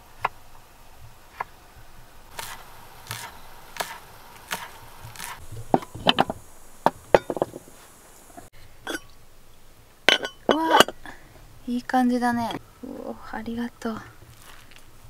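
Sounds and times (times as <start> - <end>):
rice paddle scraping metal pot: 1.0 - 9.2, 10.0 - 11.1
sharp clicks and knocks: 2.3 - 7.7.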